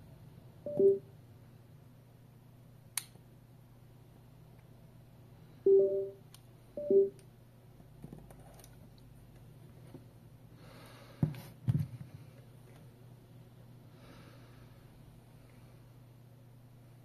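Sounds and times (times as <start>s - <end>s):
short electronic beeps: 0.7s - 1.1s, 5.7s - 6.2s, 6.8s - 7.2s.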